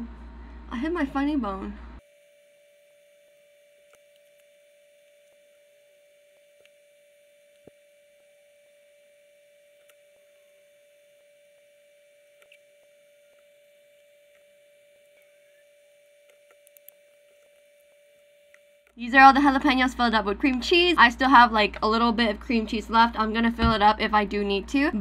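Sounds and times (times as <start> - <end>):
faint steady tone: 0.0 - 23.3
faint clicks: 16.2 - 19.0.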